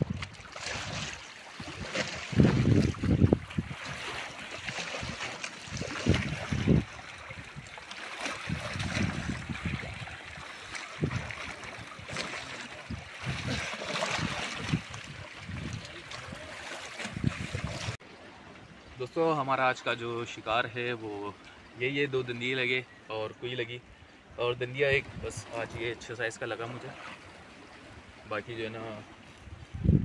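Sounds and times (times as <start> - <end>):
sea water splashing on rocks: 0.0 - 18.0
wind buffeting microphone: 0.0 - 18.0, 24.8 - 26.0, 29.4 - 30.0.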